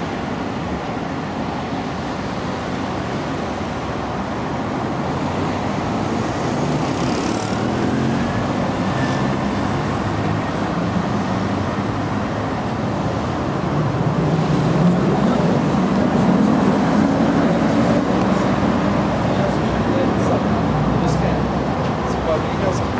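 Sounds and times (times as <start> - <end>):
cars and buses passing: 0.0 - 22.9.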